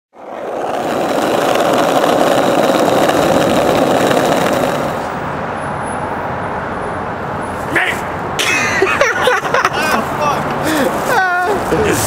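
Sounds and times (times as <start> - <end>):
skateboard wheels rolling on asphalt: 0.1 - 5.6.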